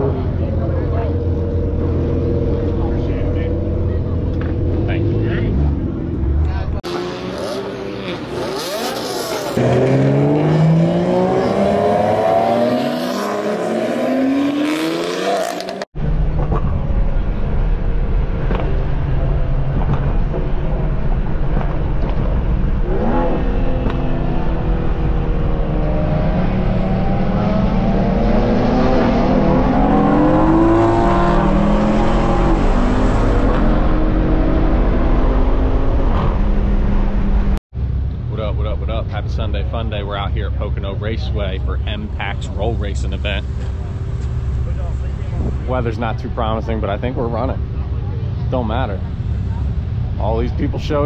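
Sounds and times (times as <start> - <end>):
car engine droning in cabin: 0.0 - 7.0
car engines revving: 0.0 - 51.0.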